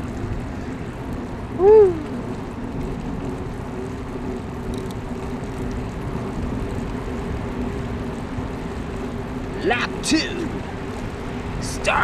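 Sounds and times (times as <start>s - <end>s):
bicycle rolling on wet pavement: 0.0s - 12.0s.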